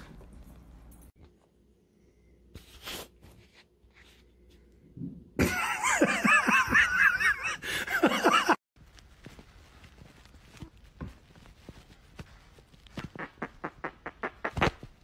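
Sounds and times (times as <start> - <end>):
person laughing hard: 5.4 - 8.6.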